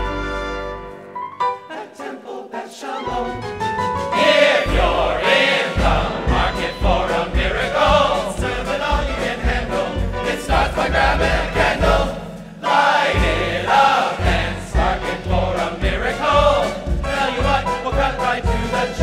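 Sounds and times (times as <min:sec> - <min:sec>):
instrumental accompaniment: 0:00.0 - 0:01.7, 0:03.0 - 0:19.0
men's chorus singing: 0:01.7 - 0:19.0
steady low beat: 0:04.7 - 0:19.0.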